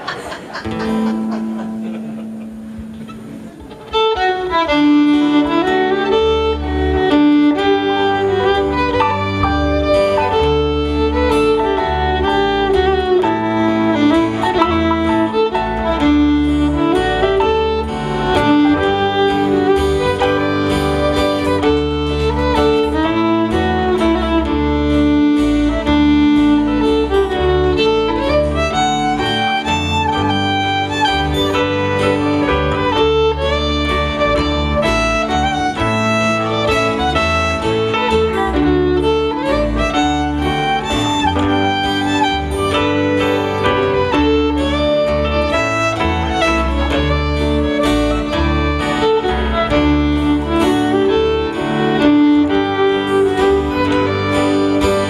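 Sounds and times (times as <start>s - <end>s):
fiddle playing a waltz: 0.0s - 55.0s
strummed acoustic guitar: 12.5s - 55.0s.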